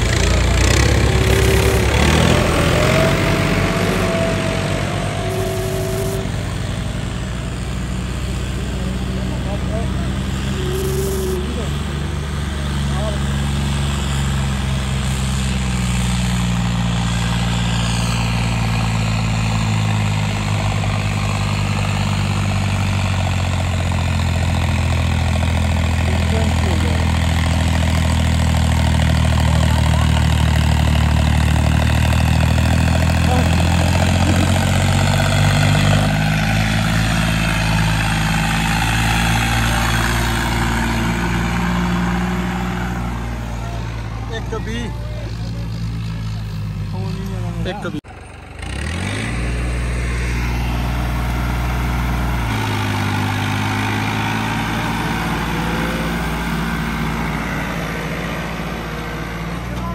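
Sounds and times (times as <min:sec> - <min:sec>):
tractor diesel engine running hard: 0:00.0 - 0:59.9.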